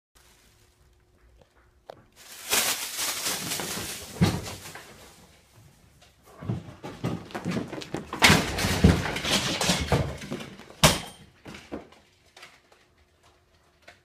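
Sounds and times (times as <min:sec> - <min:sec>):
plastic bag rustling: 0:00.2 - 0:05.9
cat scrabbling and thumping: 0:02.2 - 0:05.2.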